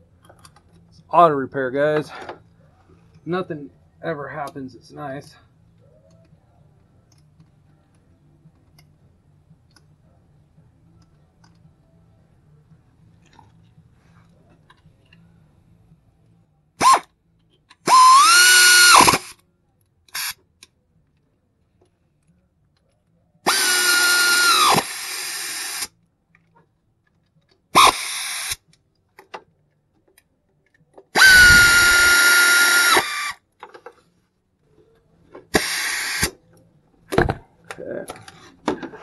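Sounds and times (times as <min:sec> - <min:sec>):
air ratchet whine: 0:16.8 - 0:17.1, 0:17.8 - 0:19.4, 0:20.2 - 0:20.4, 0:23.4 - 0:25.9, 0:27.8 - 0:28.6, 0:31.1 - 0:33.4, 0:35.5 - 0:36.4.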